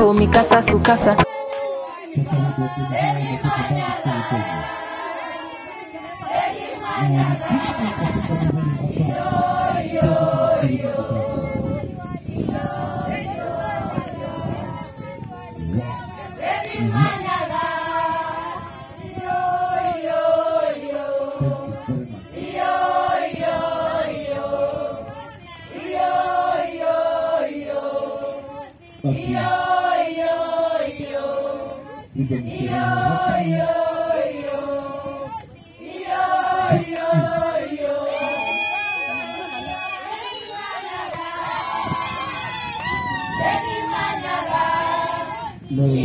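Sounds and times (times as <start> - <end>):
women singing in unison: 0.0 - 46.0.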